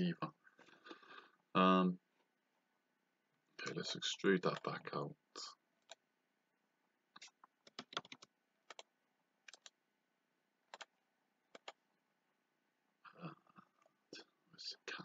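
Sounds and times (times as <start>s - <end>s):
computer mouse clicks: 7.2s - 8.9s, 9.5s - 9.7s, 11.5s - 11.8s.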